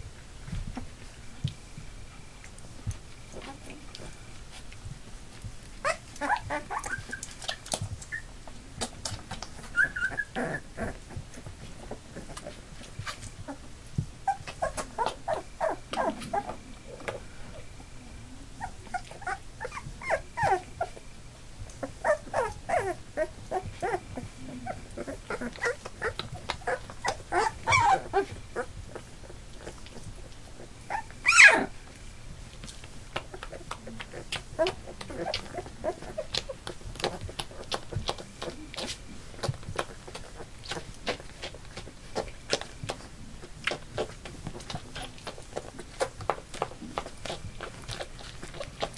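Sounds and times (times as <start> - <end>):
puppies whimpering and squeaking: 5.7 - 8.4, 9.1 - 16.6, 18.6 - 21.0, 21.7 - 31.8, 33.3 - 41.8
puppy yelp: 5.8 - 8.3, 9.6 - 11.0, 14.2 - 16.6, 18.6 - 21.0, 21.8 - 24.0, 24.6 - 28.7, 30.9 - 31.7.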